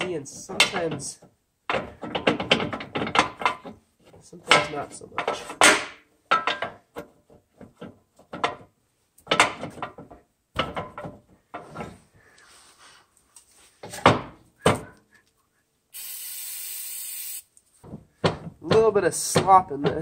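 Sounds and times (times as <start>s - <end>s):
steel parts knocking and clinking: 4.5s - 12.0s
steady hiss: 16.0s - 17.5s.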